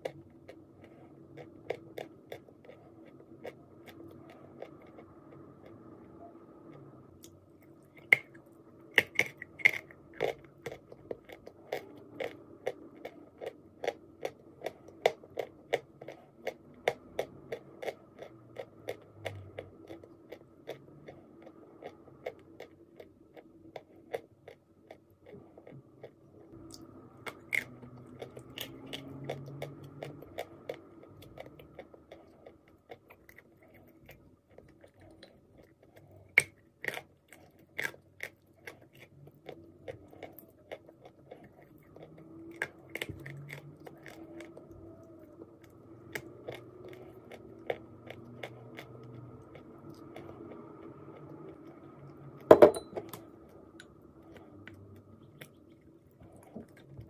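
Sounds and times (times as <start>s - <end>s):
dry clay being chewed: 0.0s - 57.0s.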